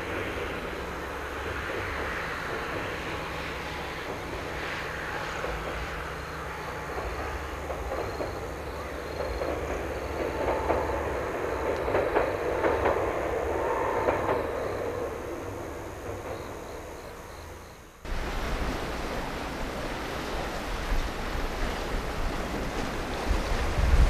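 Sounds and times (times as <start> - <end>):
distant train rumble with clicks: 0.0 - 24.0
waves washing on rocky shore: 18.1 - 24.0
wind on microphone: 18.1 - 24.0.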